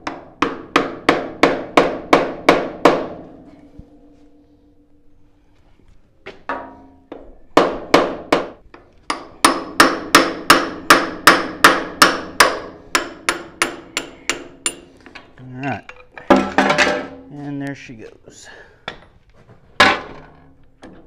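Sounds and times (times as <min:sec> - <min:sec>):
hammer striking metal: 0:06.5 - 0:08.5, 0:09.1 - 0:14.9.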